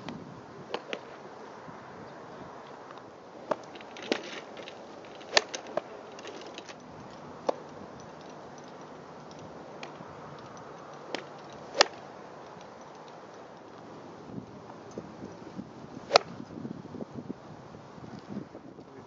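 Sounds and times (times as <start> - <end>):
golf clubs striking balls: 0.0 - 1.2, 2.7 - 16.6.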